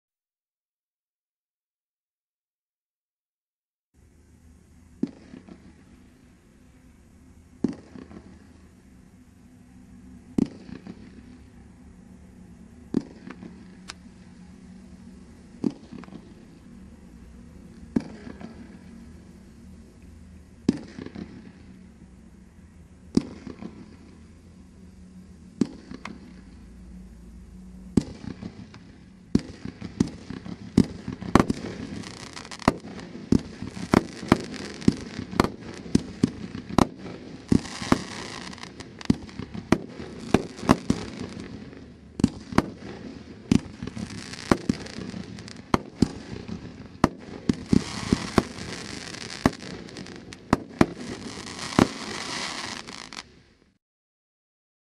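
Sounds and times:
hissing firework crackle: 0:04.0 - 0:53.8
firework shots firing: 0:05.0 - 0:05.8, 0:07.6 - 0:08.5, 0:10.3 - 0:11.3, 0:12.9 - 0:14.0, 0:15.6 - 0:16.4, 0:17.8 - 0:18.8, 0:20.6 - 0:21.7, 0:23.1 - 0:24.2, 0:25.6 - 0:26.5, 0:27.9 - 0:53.3.

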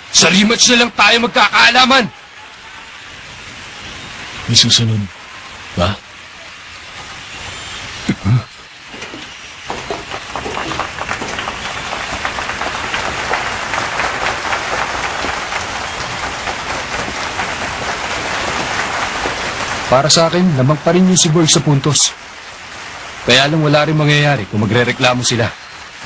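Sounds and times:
crowd applauding: 0:08.9 - 0:20.4.

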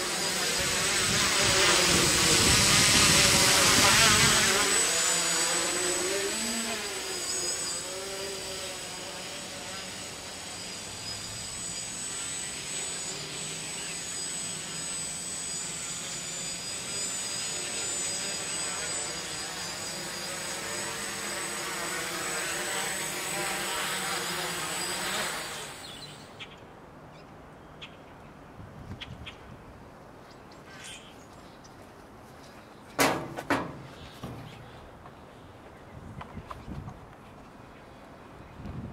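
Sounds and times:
drone propellers whirring: 0:00.0 - 0:26.4.

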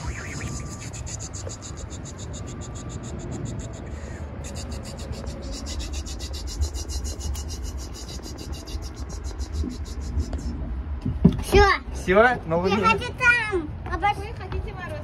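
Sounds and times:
rapid pulsing hiss: 0:00.0 - 0:10.6
kiddie ride rumbling: 0:00.0 - 0:12.0.

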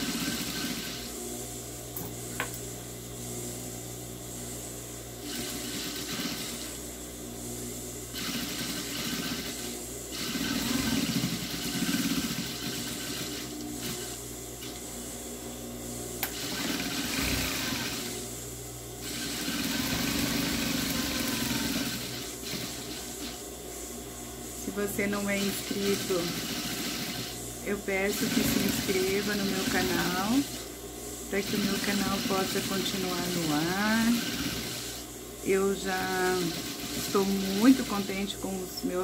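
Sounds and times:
sewing machine stitching: 0:00.0 - 0:01.1, 0:05.2 - 0:06.8, 0:08.1 - 0:14.8, 0:16.2 - 0:18.2, 0:19.0 - 0:23.4, 0:25.2 - 0:27.3, 0:28.0 - 0:30.6, 0:31.4 - 0:35.0, 0:35.8 - 0:38.3
motor hum: 0:00.0 - 0:39.0.

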